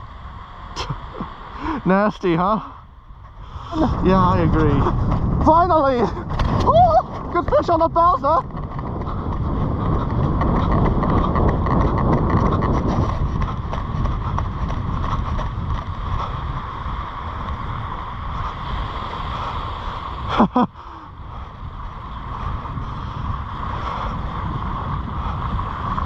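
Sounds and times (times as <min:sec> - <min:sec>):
wind buffeting microphone: 0:00.0 - 0:26.0
footsteps on sand: 0:03.9 - 0:16.4
person crying out: 0:06.6 - 0:07.1.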